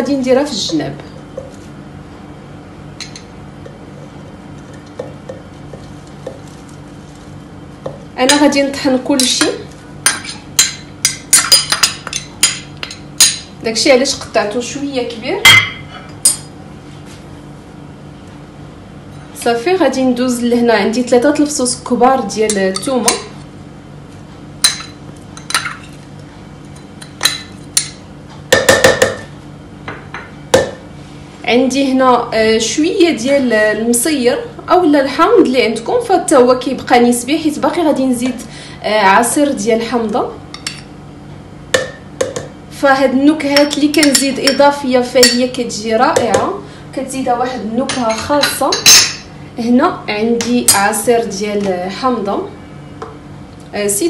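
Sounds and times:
metal spoon tapping on bowl: 27.1s - 29.3s, 41.8s - 42.5s
metal spoon clinking on ceramic bowl: 45.2s - 45.5s, 47.9s - 49.3s.

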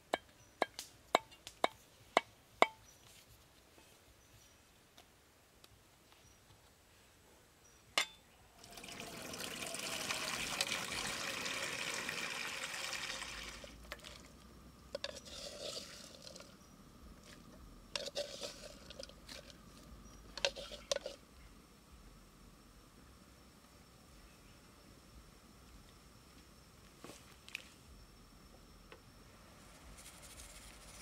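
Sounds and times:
water pouring into a steel wok: 8.6s - 14.2s.

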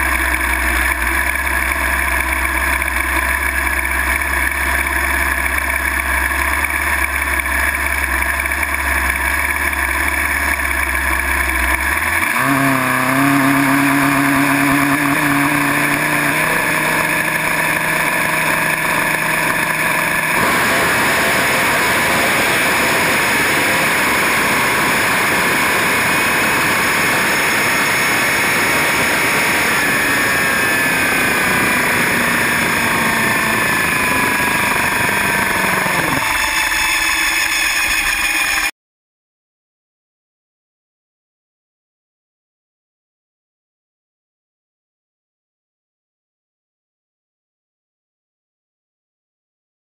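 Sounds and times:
motorcycle engine revving: 0.0s - 38.7s.

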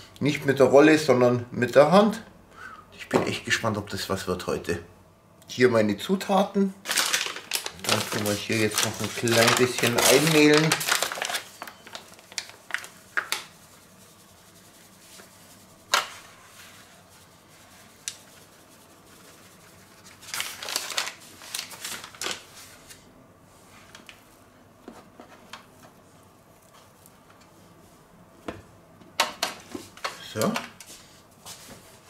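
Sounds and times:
paper bag crinkling: 6.8s - 13.5s, 20.0s - 23.0s.

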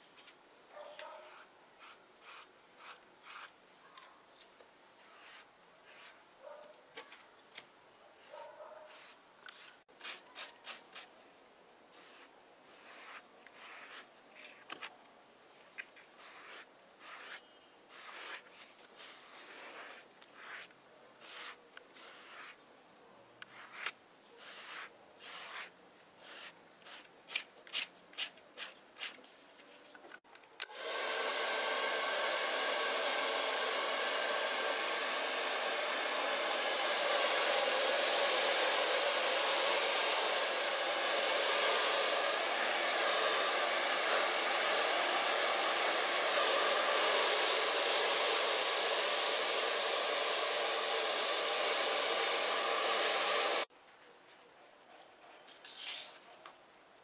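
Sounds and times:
pad rubbing over leather: 12.8s - 14.1s
hair dryer running: 30.6s - 53.7s.

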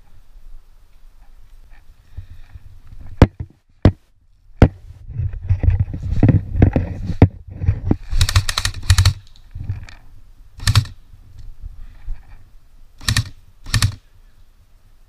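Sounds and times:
sharp gun clicks: 8.2s - 9.5s, 10.6s - 11.0s, 13.0s - 14.0s.

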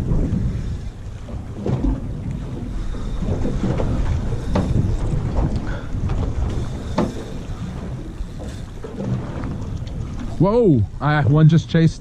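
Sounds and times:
wind buffeting microphone: 0.0s - 12.0s
sharp knocks or splashes: 1.2s - 10.4s.

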